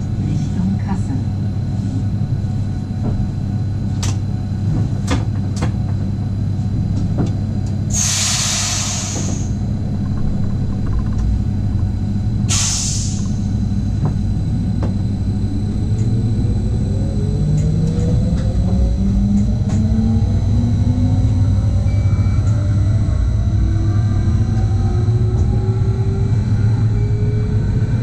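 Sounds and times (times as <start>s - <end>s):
train running rumble: 0.0s - 28.0s
rising whine: 1.2s - 28.0s
compressed air hiss: 7.9s - 9.5s, 12.5s - 13.2s.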